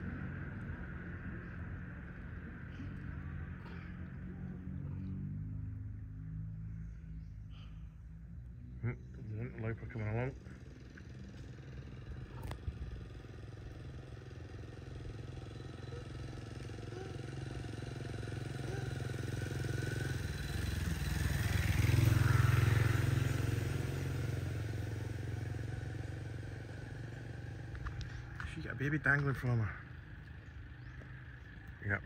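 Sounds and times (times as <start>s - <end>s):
vehicle engine passing by: 0.0s - 32.0s.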